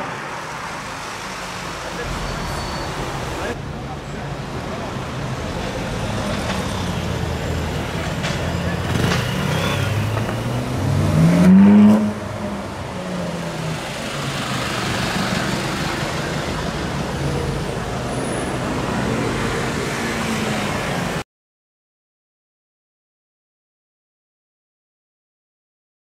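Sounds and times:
street traffic noise: 0.0s - 21.2s
car engine revving: 6.0s - 17.1s.

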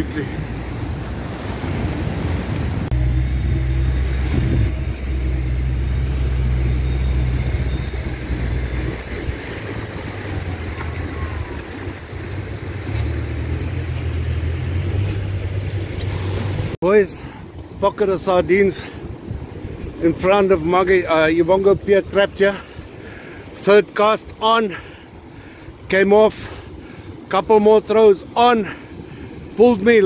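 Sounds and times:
surf breaking on rocks: 0.0s - 3.0s, 8.1s - 13.9s
wind buffeting microphone: 0.0s - 15.0s, 16.4s - 23.6s.

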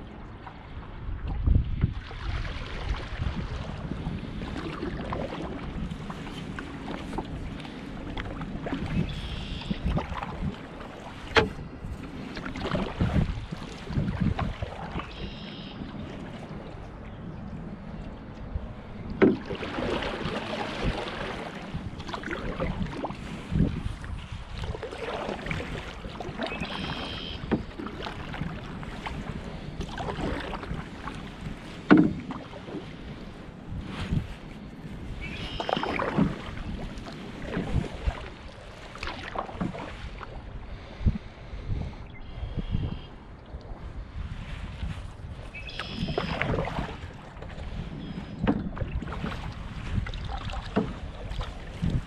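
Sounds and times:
paddle splashing through water: 0.0s - 52.0s
wind rumble on microphone: 0.0s - 52.0s
paddle knocking against canoe: 3.8s - 17.0s, 18.3s - 33.0s, 35.0s - 40.6s, 45.4s - 52.0s.

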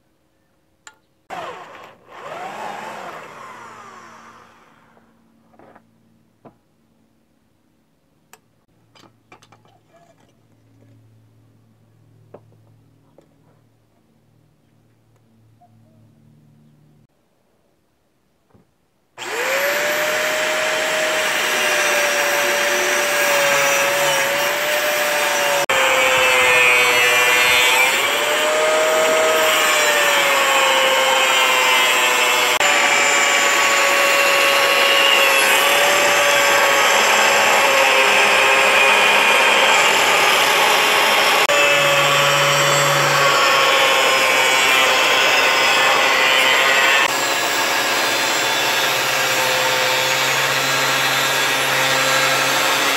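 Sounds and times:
angle grinder motor whine: 1.3s - 5.1s, 19.2s - 52.9s.

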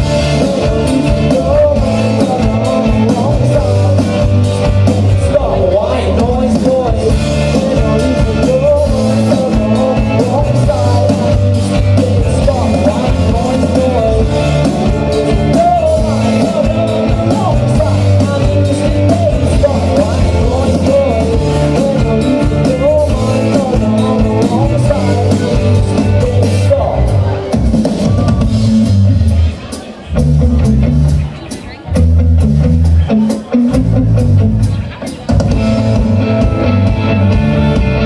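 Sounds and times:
person singing: 0.0s - 28.6s
bass guitar: 0.0s - 38.0s
drum kit: 0.0s - 38.0s
electric guitars: 0.0s - 38.0s.

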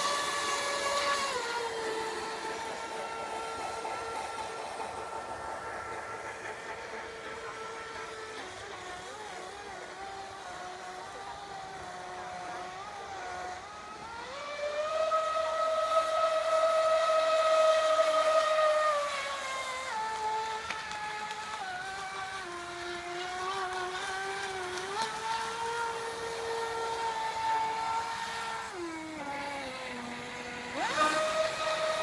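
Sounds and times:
model boat motor whining: 0.0s - 32.0s.

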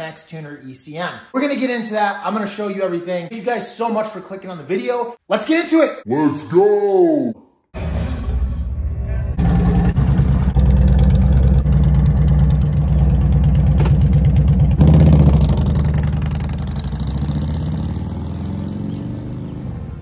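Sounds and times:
motorcycle engine revving and pulling away: 9.4s - 20.0s.

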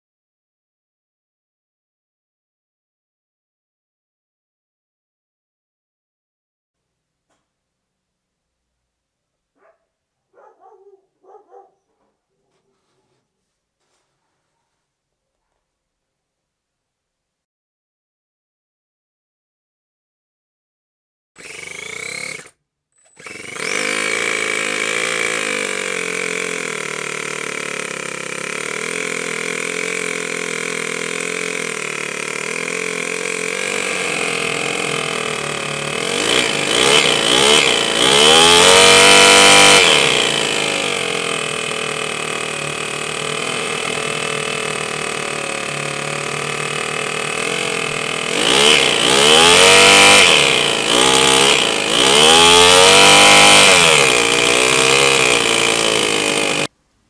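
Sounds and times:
model engine idling and revving: 21.4s - 56.7s.

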